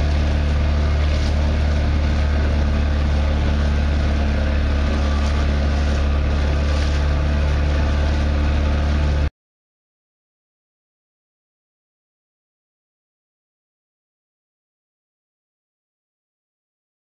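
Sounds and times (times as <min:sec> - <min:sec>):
water rushing past hull: 0:00.0 - 0:09.3.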